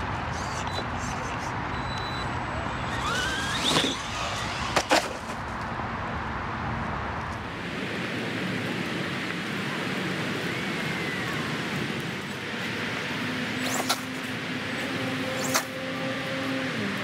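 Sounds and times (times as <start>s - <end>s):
toy car hitting ground: 3.0s - 5.4s.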